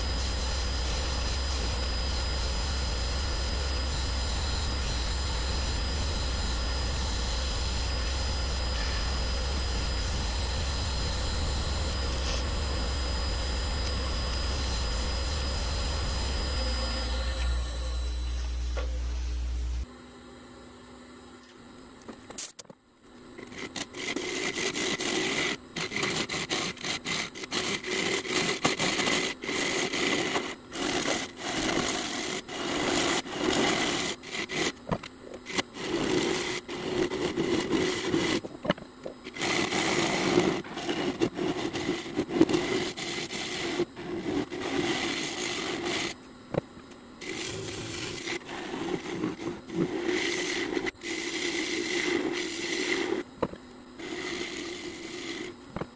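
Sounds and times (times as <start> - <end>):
lathe tool scraping wood: 23.4 - 46.2, 47.2 - 55.9.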